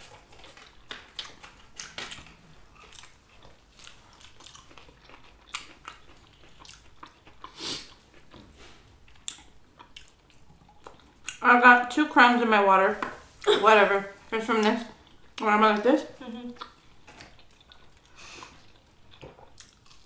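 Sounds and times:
biting and chewing food: 0.0 - 11.4, 16.5 - 20.0.

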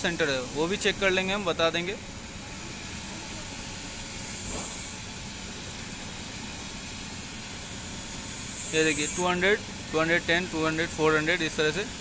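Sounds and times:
steady hissing noise: 0.0 - 12.0.

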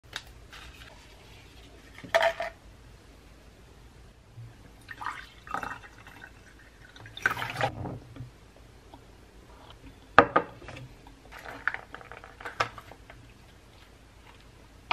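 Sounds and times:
water pouring into a glass: 4.8 - 7.7.

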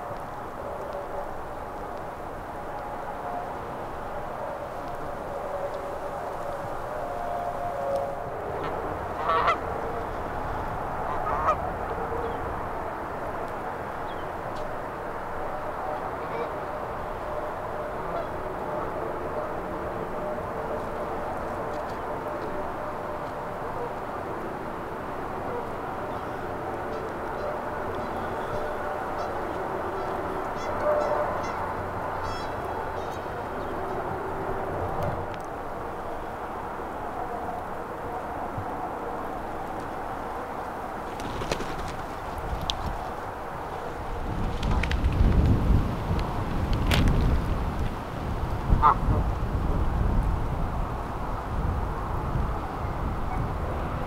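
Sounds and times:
steady background noise: 0.0 - 54.0
geese honking: 8.5 - 10.3, 11.0 - 12.4, 15.6 - 16.8, 17.9 - 19.0, 25.5 - 34.4, 48.8 - 49.2.

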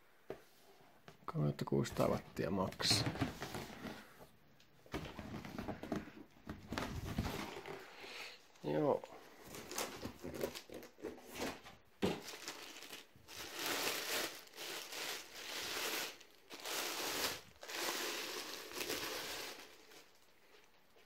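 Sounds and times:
plastic bag crinkling: 12.0 - 20.6.

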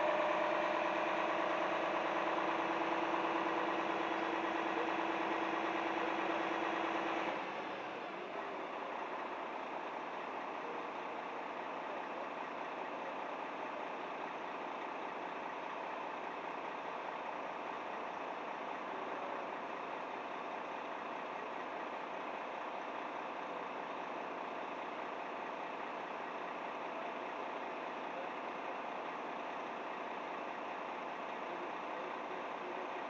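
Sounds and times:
diesel truck engine idling: 0.0 - 33.0.

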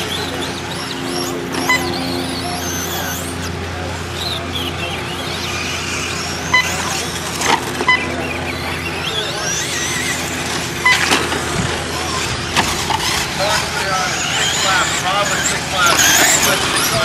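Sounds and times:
rc truck motors whining: 0.0 - 17.0
short high beeps: 1.5 - 2.2, 6.5 - 6.9, 7.8 - 8.2
rc trucks knocking: 4.2 - 17.0.

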